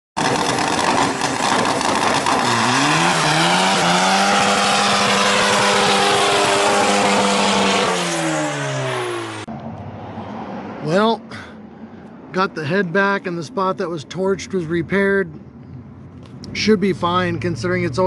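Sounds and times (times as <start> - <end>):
tires squealing: 0.2 - 9.5
car engine revving: 0.2 - 10.8.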